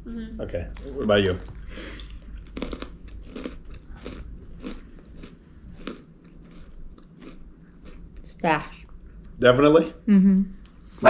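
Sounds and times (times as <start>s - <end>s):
person chewing crunchy crackers: 0.8s - 9.3s.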